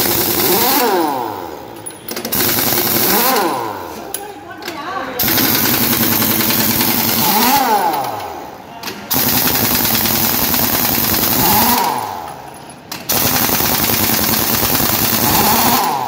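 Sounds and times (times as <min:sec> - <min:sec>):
impact wrench hammering: 0:00.0 - 0:04.2, 0:05.2 - 0:16.0.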